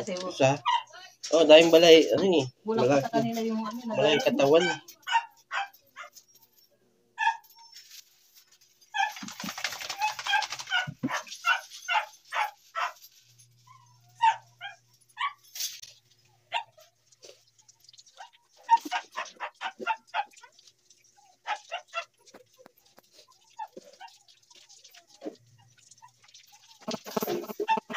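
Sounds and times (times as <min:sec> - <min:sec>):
dog yipping and whimpering: 0:00.6 - 0:01.0, 0:03.9 - 0:06.6, 0:07.2 - 0:13.0, 0:13.6 - 0:15.5, 0:16.5 - 0:16.9, 0:18.1 - 0:24.3, 0:25.2 - 0:27.9
water spraying from dog shaking: 0:09.0 - 0:11.0.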